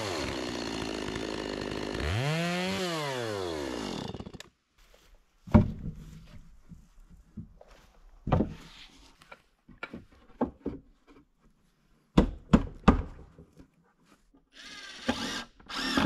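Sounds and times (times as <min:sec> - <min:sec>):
wooden slabs knocked against log wall: 0:05.5 - 0:06.4, 0:08.2 - 0:08.6, 0:12.2 - 0:13.4
cordless drill driving screws: 0:14.5 - 0:16.0.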